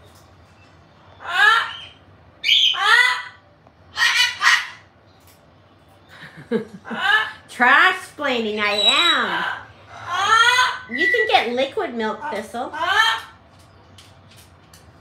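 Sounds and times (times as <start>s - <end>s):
parrot calling loudly: 1.2s - 4.9s, 6.9s - 7.5s, 8.6s - 11.5s, 12.2s - 13.4s.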